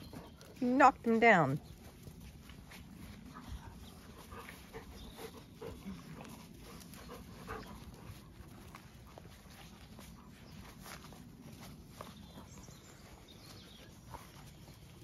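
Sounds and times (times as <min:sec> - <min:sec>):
dogs panting: 0:00.0 - 0:15.0
soft scuffling: 0:06.0 - 0:15.0.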